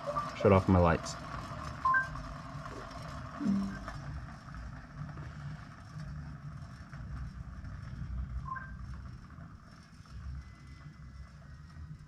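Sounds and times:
low mechanical rumble of spinner: 0:00.0 - 0:12.0
two-note chirp: 0:03.4 - 0:04.0.

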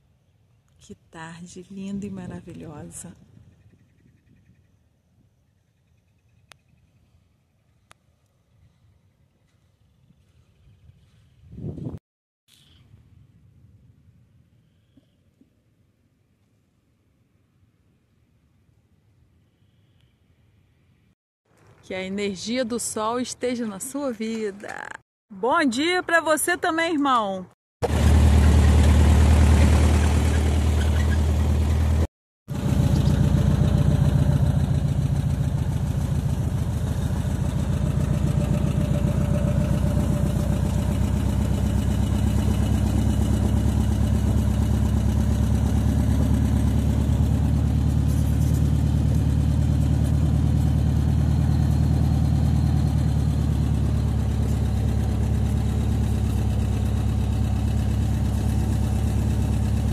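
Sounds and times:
low engine-like hum: 0:27.8 - 0:59.9.

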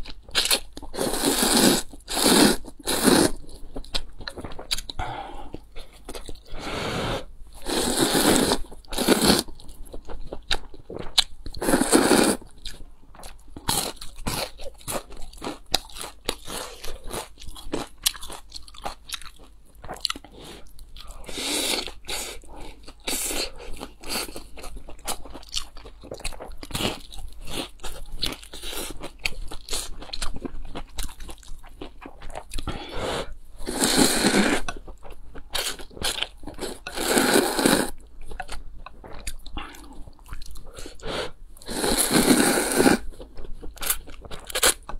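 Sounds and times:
slurping noodles: 0:01.0 - 0:03.4, 0:06.6 - 0:09.5, 0:11.6 - 0:12.4, 0:32.9 - 0:34.7, 0:36.8 - 0:38.0, 0:40.8 - 0:43.1.

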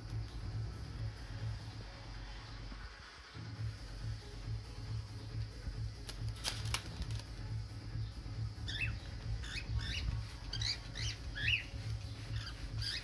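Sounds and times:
parrots chirping: 0:08.6 - 0:13.0.

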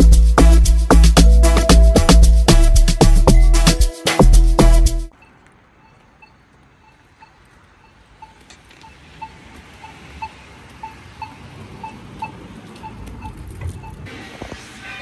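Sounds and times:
low traffic rumble: 0:00.0 - 0:15.0
short electronic beeps: 0:05.1 - 0:14.1.

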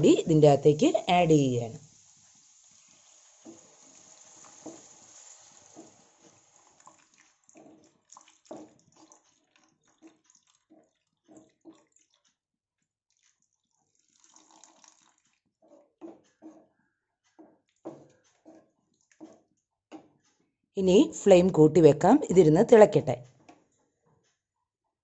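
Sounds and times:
spatula stirring wet food: 0:01.8 - 0:20.6.

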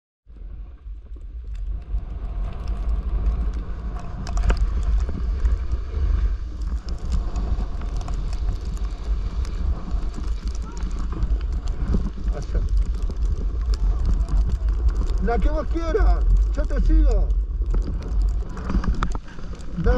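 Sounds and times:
wind buffeting microphone: 0:00.9 - 0:19.9
snowboard sliding on snow: 0:01.7 - 0:19.9.

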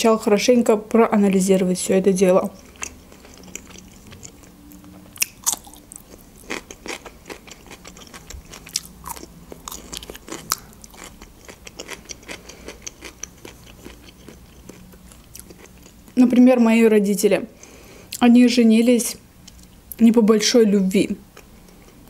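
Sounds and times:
person chewing cucumber: 0:02.5 - 0:16.2, 0:19.4 - 0:20.0.

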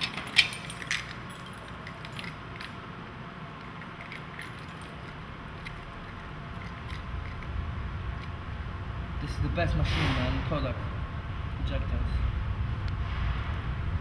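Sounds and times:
metallic clicks and rattles: 0:00.0 - 0:02.8, 0:03.6 - 0:07.6
steady low hum: 0:00.0 - 0:14.0.

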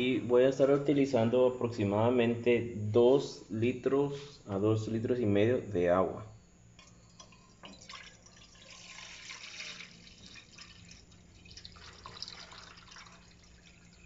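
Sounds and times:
water poured into pot: 0:07.2 - 0:14.0.

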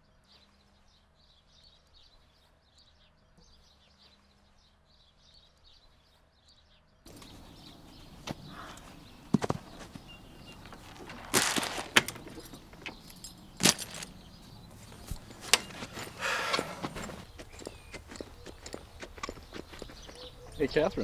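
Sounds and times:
metal clanks: 0:07.1 - 0:19.9
metallic jangling rattle: 0:07.1 - 0:20.3.

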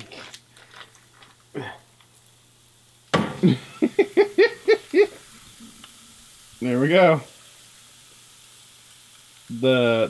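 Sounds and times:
meat sizzling on grill: 0:00.0 - 0:10.0
person laughing: 0:03.3 - 0:05.3.

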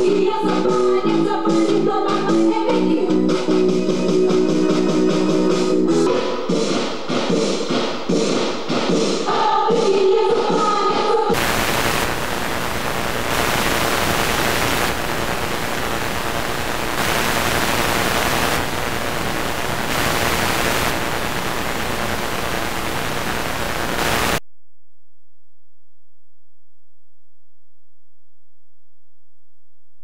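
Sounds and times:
videotape static hiss: 0:11.3 - 0:24.4.

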